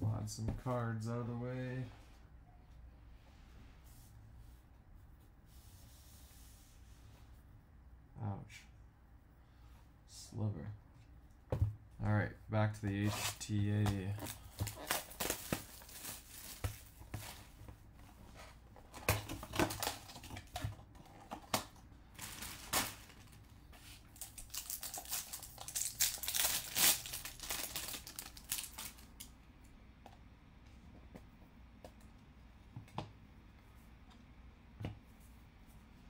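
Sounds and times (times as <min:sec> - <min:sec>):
pack wrappers crinkling: 0:14.1 - 0:16.9, 0:21.6 - 0:23.4, 0:24.0 - 0:29.3.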